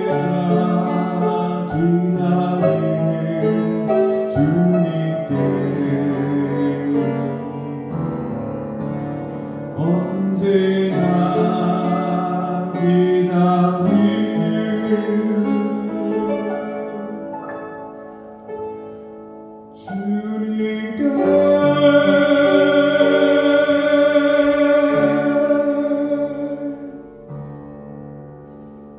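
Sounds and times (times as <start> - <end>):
man singing a hymn: 0.0 - 7.9, 9.5 - 16.8, 19.8 - 27.2
upright piano: 0.0 - 28.9.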